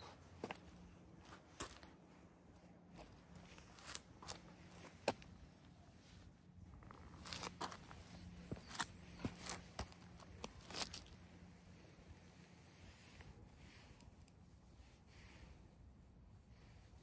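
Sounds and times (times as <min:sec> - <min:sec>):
footsteps on rock and dry leaves: 0:00.4 - 0:01.9, 0:02.9 - 0:05.3, 0:06.8 - 0:11.2.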